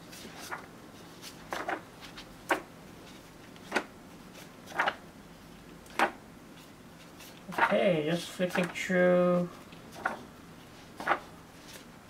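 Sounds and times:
book pages turning: 0:00.0 - 0:05.0, 0:05.9 - 0:07.7, 0:08.4 - 0:08.8, 0:09.6 - 0:11.9.

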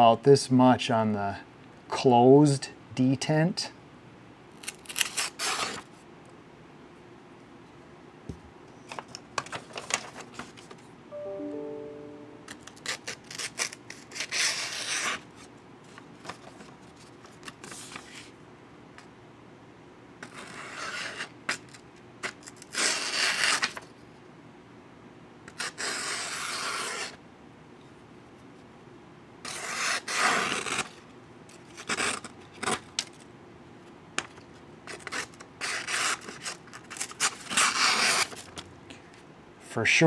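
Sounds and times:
knife slicing paper: 0:04.6 - 0:05.8.

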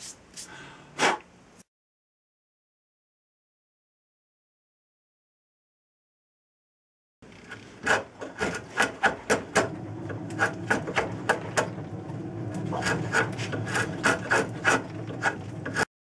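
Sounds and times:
wood rasp scraping: 0:07.4 - 0:11.7, 0:12.5 - 0:15.9.

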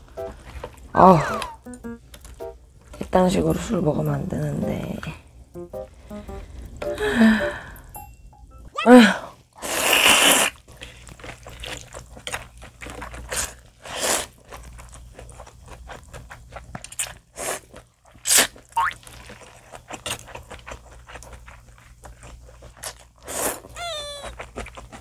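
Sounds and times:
person slurping noodles: 0:09.6 - 0:10.6
wet mouth sounds: 0:18.3 - 0:19.0.

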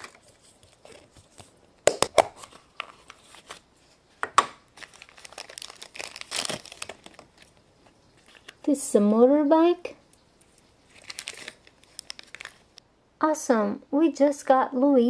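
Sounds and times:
foil wrapper crinkling and tearing: 0:00.0 - 0:03.6, 0:04.7 - 0:07.6, 0:10.9 - 0:12.8.

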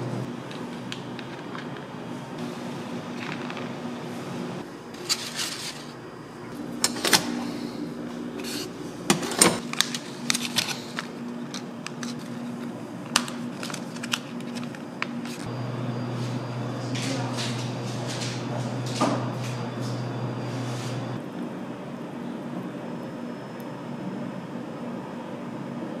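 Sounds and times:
steady low hum: 0:00.0 - 0:26.0
plastic packet rustling: 0:09.6 - 0:15.4.

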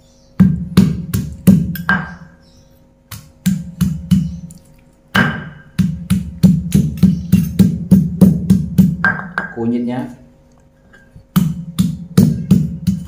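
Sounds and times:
stone pestle pounding in mortar: 0:00.4 - 0:02.3, 0:03.1 - 0:04.4, 0:05.1 - 0:09.6, 0:11.3 - 0:13.0.

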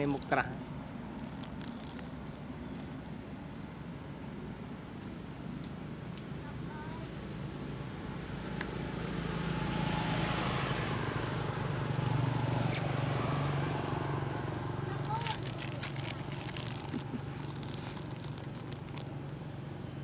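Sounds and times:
vehicle engine passing by: 0:07.2 - 0:19.0.

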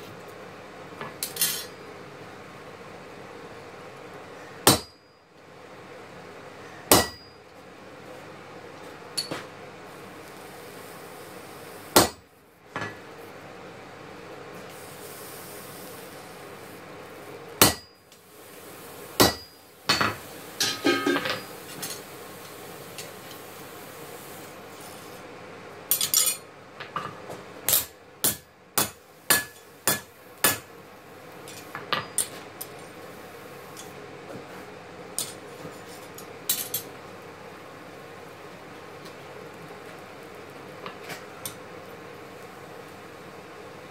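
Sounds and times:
hammer striking anvil: 0:04.7 - 0:05.0, 0:06.9 - 0:07.3, 0:17.6 - 0:17.9, 0:19.2 - 0:21.4, 0:27.7 - 0:30.6.

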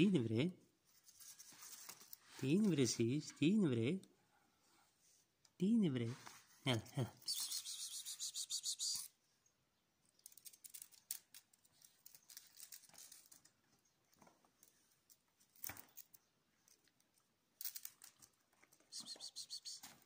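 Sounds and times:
kittens' paws scampering on concrete: 0:00.8 - 0:03.0, 0:06.3 - 0:09.2, 0:10.0 - 0:20.0.

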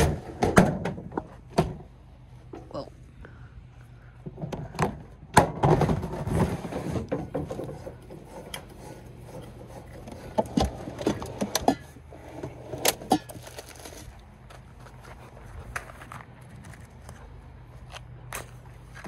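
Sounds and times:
rustling and scraping: 0:05.6 - 0:19.0.

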